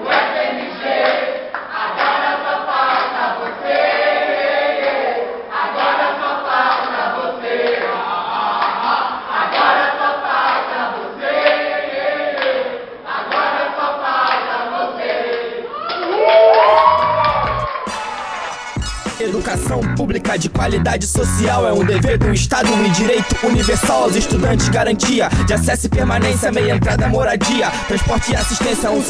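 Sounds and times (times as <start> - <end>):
group singing a chant: 0.0 - 15.8, 22.6 - 29.0
hands clapping: 8.6 - 8.8.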